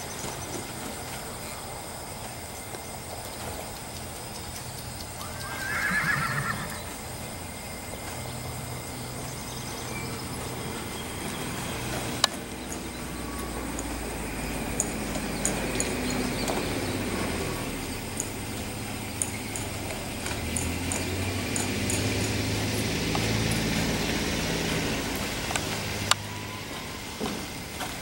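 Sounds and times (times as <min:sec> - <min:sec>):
hoofbeats on soft dirt: 0:00.0 - 0:28.0
horse whinnying: 0:05.2 - 0:07.1.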